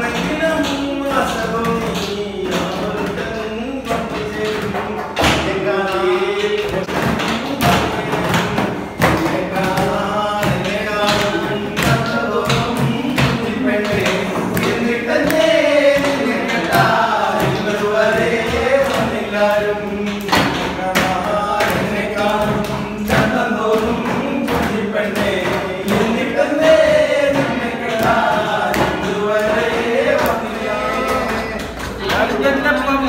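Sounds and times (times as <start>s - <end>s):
men singing together: 0.0s - 33.0s
hands slapping tabletop: 6.8s - 32.2s.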